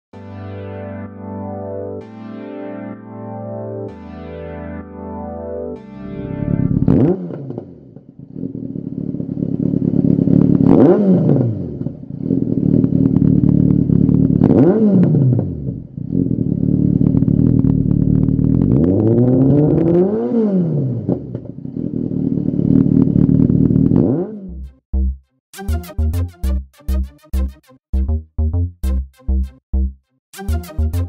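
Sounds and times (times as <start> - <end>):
motorcycle engine revving: 6.2 - 24.7
motorcycle engine idling: 12.4 - 14.4.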